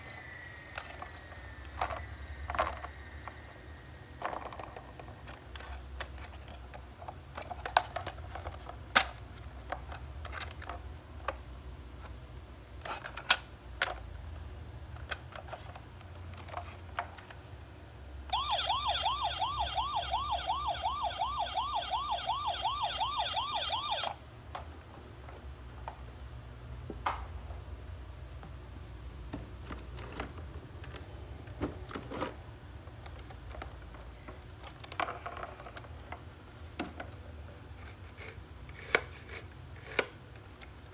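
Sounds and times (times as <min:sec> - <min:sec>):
electronic toy siren wailing: 0:18.3 - 0:24.2.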